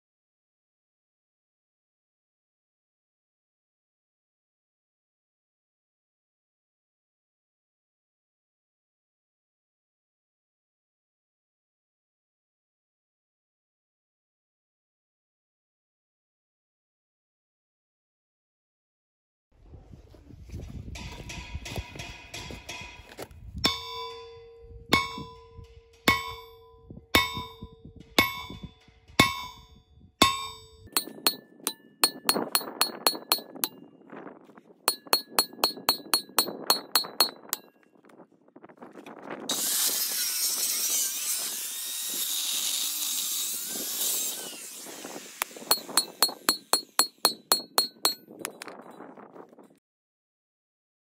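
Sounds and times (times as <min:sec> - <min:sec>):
hammer clanging on steel plate: 0:21.0 - 0:33.8, 0:34.9 - 0:37.7, 0:45.7 - 0:48.7.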